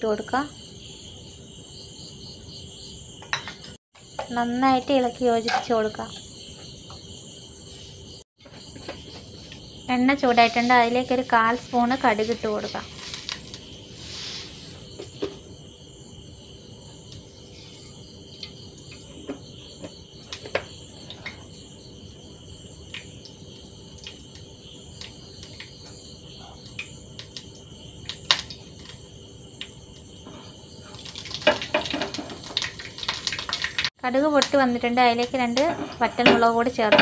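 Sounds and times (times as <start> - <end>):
seeds sizzling in hot oil: 10.2 - 15.2, 20.2 - 36.2.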